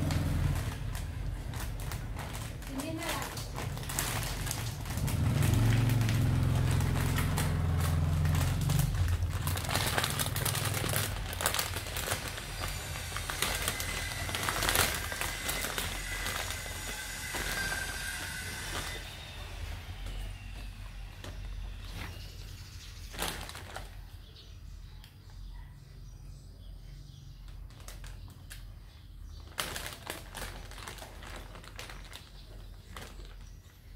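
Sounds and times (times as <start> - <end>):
low rumble: 0.0 - 22.6
plastic bag crinkling: 0.0 - 24.4, 27.5 - 33.9.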